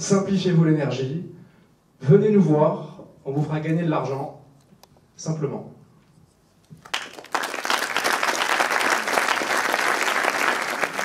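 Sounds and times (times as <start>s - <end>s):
audience applauding: 6.8s - 11.0s.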